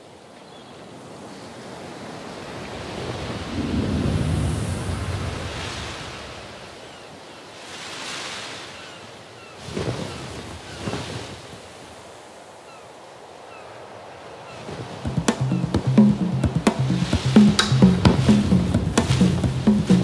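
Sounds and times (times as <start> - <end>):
rushing surf-like noise: 2.4 - 6.6, 14.6 - 20.0.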